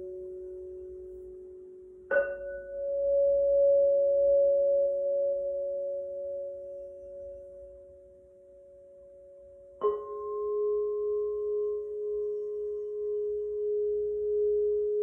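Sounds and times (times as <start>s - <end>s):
crystal singing bowls ringing: 0.0s - 15.0s
bowl struck with wand: 2.1s - 7.6s.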